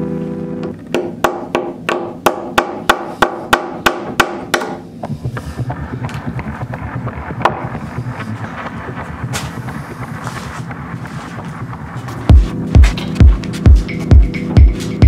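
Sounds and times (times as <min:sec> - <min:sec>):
hammer striking nails: 0:00.9 - 0:04.8.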